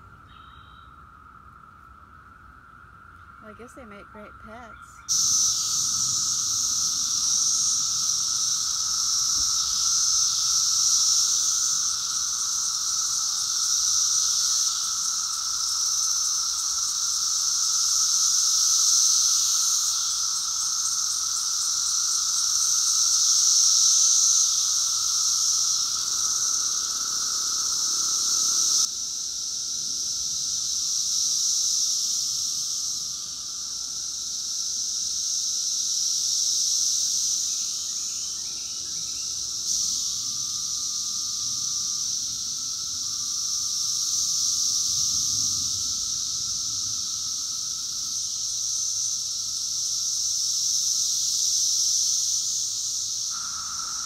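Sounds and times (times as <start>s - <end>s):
cicadas chorus drone: 0.0s - 54.0s.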